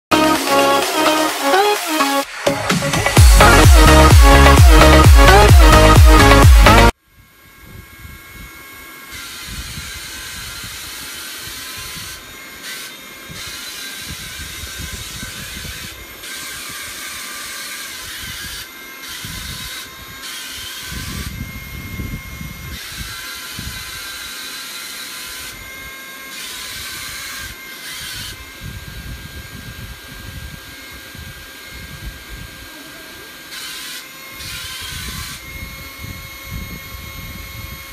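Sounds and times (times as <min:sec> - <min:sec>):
toy car motor whining: 0:00.1 - 0:37.9.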